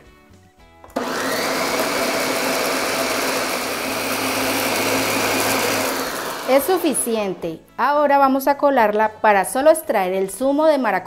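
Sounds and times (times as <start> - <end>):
blender running: 0.9 - 7.4.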